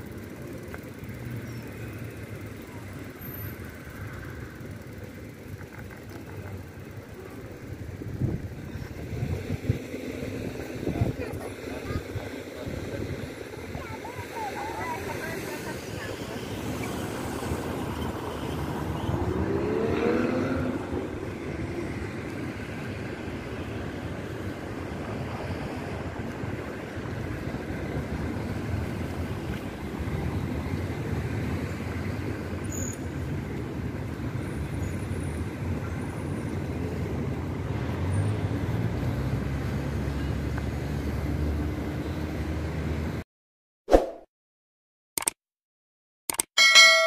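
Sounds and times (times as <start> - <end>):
cars passing: 0.0 - 43.2.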